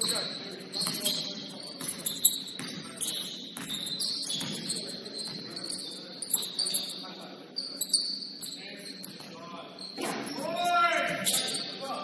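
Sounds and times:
low gym noise: 0.0 - 12.0
sneaker squeaks: 0.0 - 12.0.

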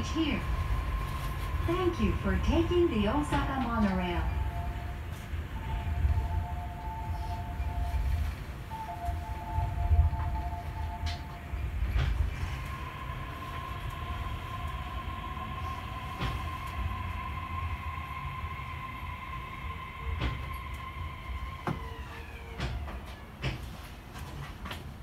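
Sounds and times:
monorail train rumbling: 0.0 - 25.0.

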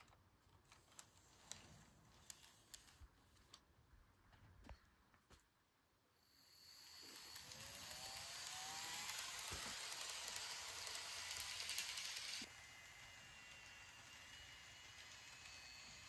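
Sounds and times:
small electric motor whining: 6.2 - 16.0
model train wheels rattling: 7.2 - 12.5.

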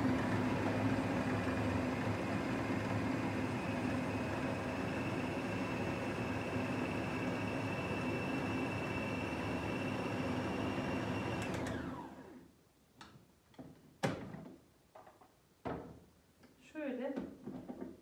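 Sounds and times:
food processor motor whine: 0.0 - 12.4.

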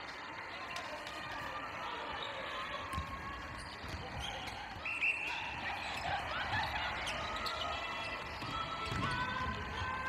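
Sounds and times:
shoes squeaking on court: 2.7 - 9.8.

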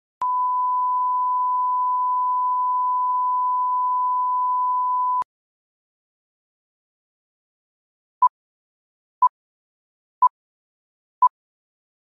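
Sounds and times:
steady test tone beep: 0.2 - 5.2.

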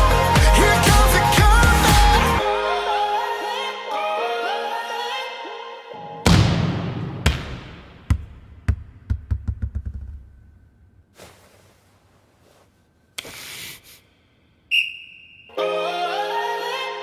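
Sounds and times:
ball bouncing on wooden floor: 7.2 - 10.5.

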